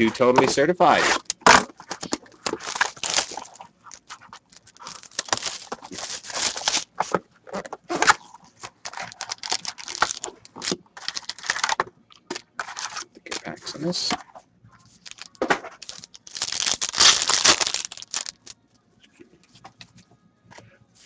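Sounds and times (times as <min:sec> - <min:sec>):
plastic wrap crinkling and tearing: 0:00.9 - 0:11.8, 0:12.6 - 0:13.8, 0:14.9 - 0:18.6
card pack handled: 0:01.0 - 0:07.2, 0:08.0 - 0:14.2, 0:15.0 - 0:18.5.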